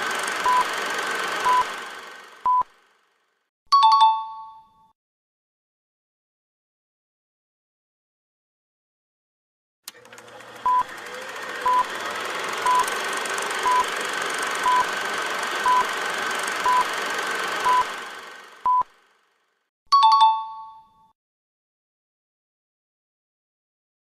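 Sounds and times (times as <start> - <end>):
short electronic beeps: 13.6 - 13.8, 14.6 - 14.8, 16.7 - 16.9, 18.6 - 18.9.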